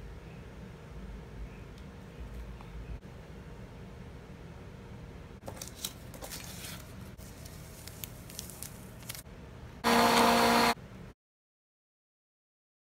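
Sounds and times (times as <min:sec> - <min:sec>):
crinkly rustling: 0:05.4 - 0:09.2
milk frother whirring: 0:09.8 - 0:10.8.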